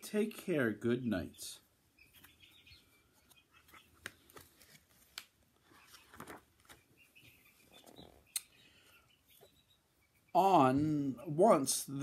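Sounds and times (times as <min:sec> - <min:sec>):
soft clicks of book handling: 0:03.3 - 0:06.8
book pages turning: 0:03.6 - 0:06.8.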